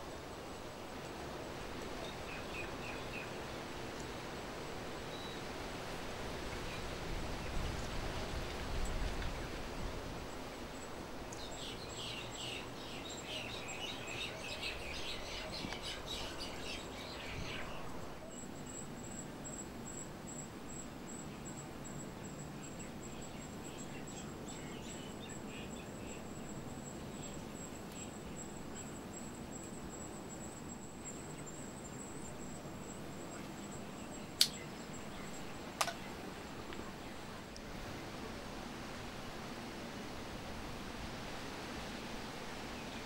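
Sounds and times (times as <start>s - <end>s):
low background noise: 0.0s - 43.0s
birds chirping: 10.7s - 18.8s.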